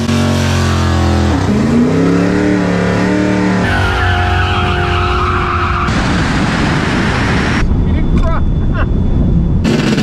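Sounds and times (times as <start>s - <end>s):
drag car engine revving: 0.0s - 6.0s.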